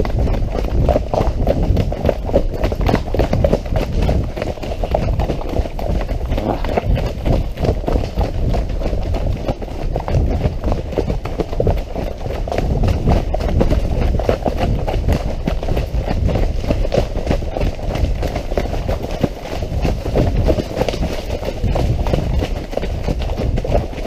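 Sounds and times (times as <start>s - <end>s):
steady low rumble: 0.0s - 10.9s
hoofbeats in wet mud: 0.0s - 24.0s.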